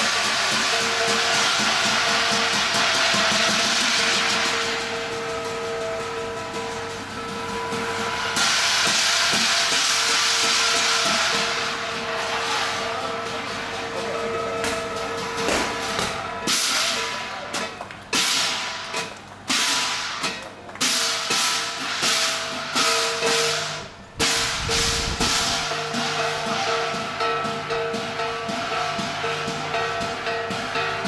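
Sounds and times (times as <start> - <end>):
cymbal crashes: 0.0 - 17.4, 18.1 - 31.0
ringing gong: 0.0 - 17.5, 20.9 - 31.0
drum beats: 0.0 - 31.0.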